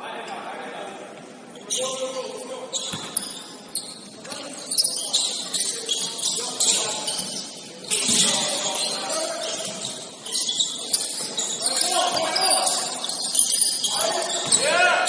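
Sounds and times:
faint players' voices: 0.0s - 15.0s
basketball bouncing on court: 2.9s - 3.4s, 14.3s - 14.6s.

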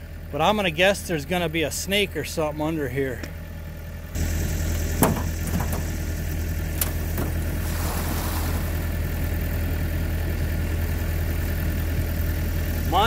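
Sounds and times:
engine idling: 0.0s - 13.0s
metal boat knock: 5.0s - 5.9s
scraping rustle: 7.1s - 9.1s.

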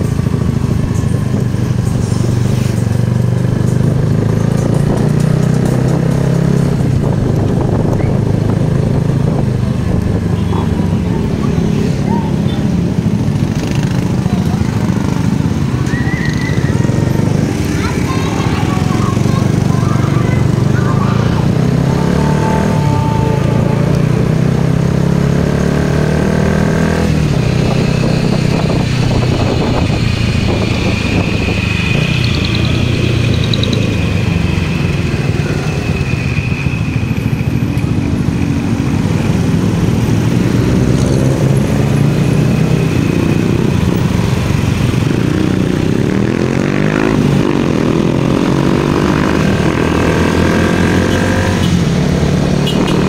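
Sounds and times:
motorcycle engine running: 0.0s - 53.0s
road and wind noise: 0.0s - 53.0s.

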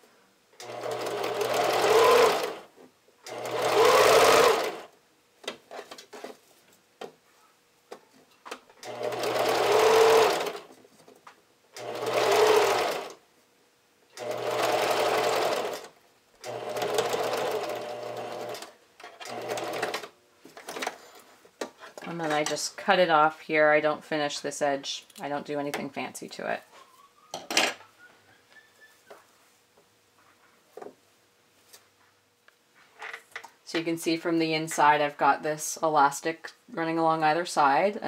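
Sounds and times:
sewing machine stitching: 0.6s - 2.7s, 3.3s - 4.9s, 8.8s - 10.7s, 11.8s - 13.2s, 14.2s - 20.1s.

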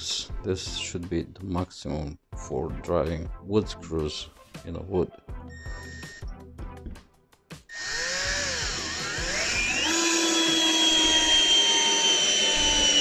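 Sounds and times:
cordless drill whining: 7.7s - 13.0s.

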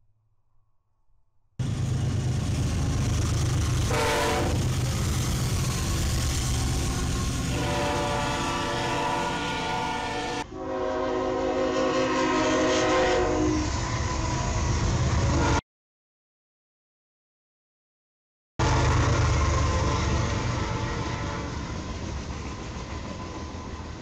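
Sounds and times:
rumble of passing trains: 1.6s - 15.6s, 18.6s - 24.0s
locomotive air horn: 3.9s - 4.7s, 7.3s - 13.7s, 19.7s - 21.6s
lower-pitched train horn: 3.9s - 4.7s, 6.9s - 14.2s, 15.3s - 15.6s, 18.6s - 21.7s.

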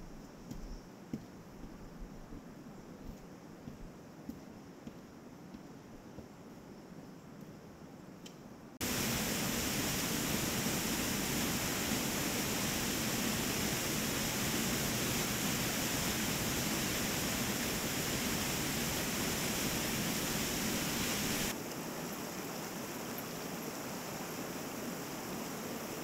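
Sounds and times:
waterfall rushing: 8.8s - 21.6s
creek running over rapids: 8.8s - 26.0s.

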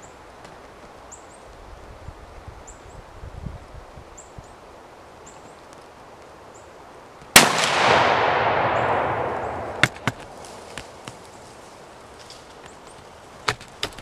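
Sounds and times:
gunshot: 7.4s - 10.3s.

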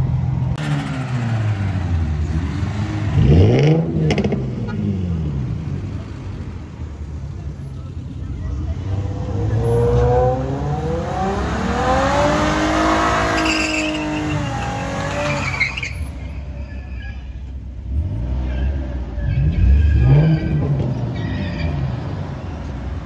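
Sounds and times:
engine revving: 0.6s - 5.0s, 9.0s - 15.3s
car tyres squealing: 9.0s - 23.0s.

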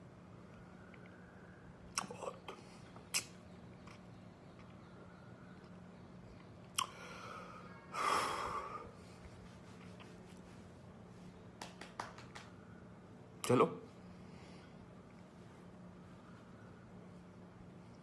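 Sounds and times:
faint steady hum: 0.0s - 18.0s
lip and tongue clicks: 1.9s - 2.4s, 3.0s - 4.9s, 6.4s - 7.0s.

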